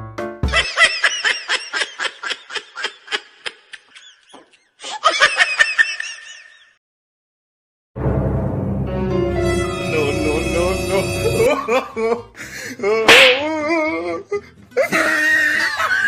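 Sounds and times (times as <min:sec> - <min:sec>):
high-pitched rapid laughter: 0:11.3 - 0:12.2, 0:14.8 - 0:16.0.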